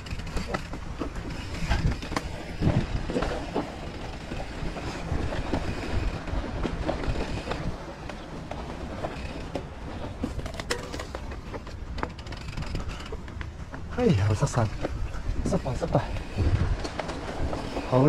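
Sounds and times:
bike knocks and rattles: 0.0 - 18.0.

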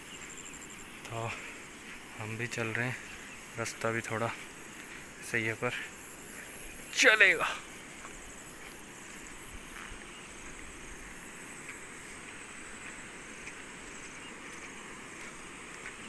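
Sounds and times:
faint river rushing: 0.0 - 16.0.

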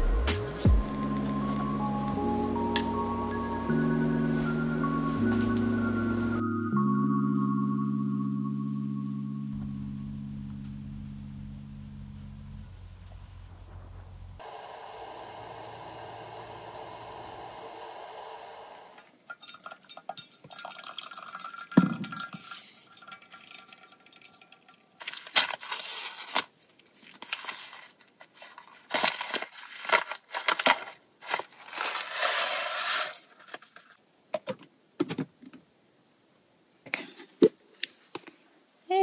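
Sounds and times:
steady hiss: 13.4 - 19.2
paper pouch crinkling: 25.0 - 34.1.

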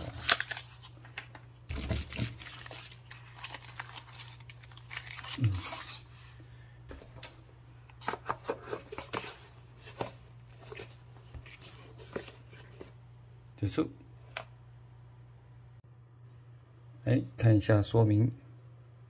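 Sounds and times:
packaging rustling: 0.0 - 7.3.

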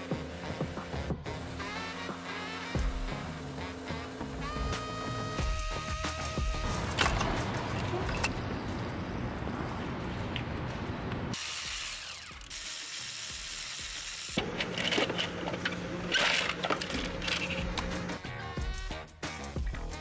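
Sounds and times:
ratchet wrench clicking: 11.6 - 14.4.

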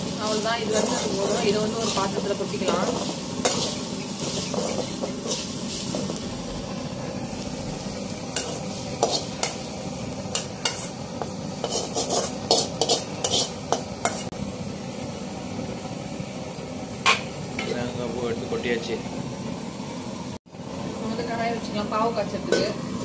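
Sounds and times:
metal ladle scraping steel bowl: 10.3 - 11.0, 11.6 - 14.3.

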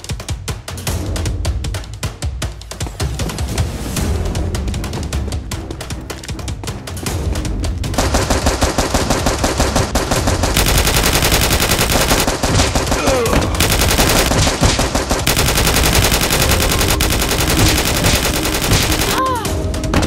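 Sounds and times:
machine-gun fire: 8.0 - 19.2.

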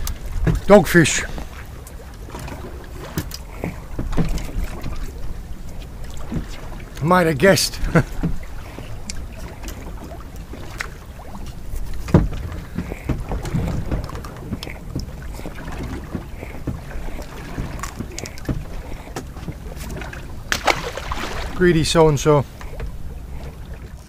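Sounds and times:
sea noise: 0.0 - 24.0
wind: 0.0 - 24.0
clicks from handling fishing line: 3.1 - 5.1, 17.6 - 20.8.

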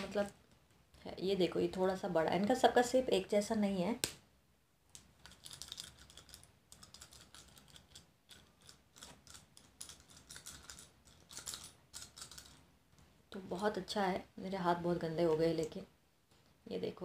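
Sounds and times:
pencils snapping and crumbling: 5.0 - 12.6.

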